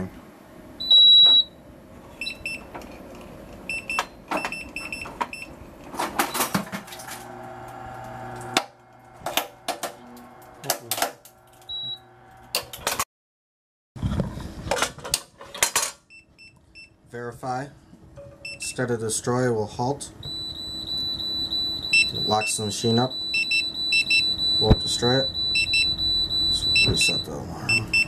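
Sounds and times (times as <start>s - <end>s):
short electronic beeps: 0.8s - 1.5s, 20.2s - 28.0s
machine motor running: 6.6s - 12.6s.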